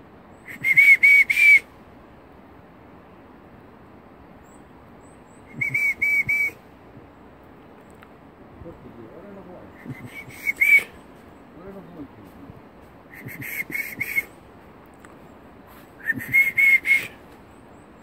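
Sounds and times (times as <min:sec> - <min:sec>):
short high whistled pips: 0:00.5 - 0:01.6, 0:05.5 - 0:06.6, 0:09.8 - 0:11.0, 0:13.1 - 0:14.4, 0:15.7 - 0:17.3.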